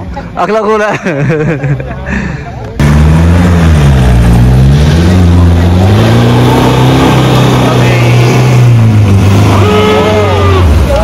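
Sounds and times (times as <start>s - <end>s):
suv engine revving hard: 2.8s - 11.0s.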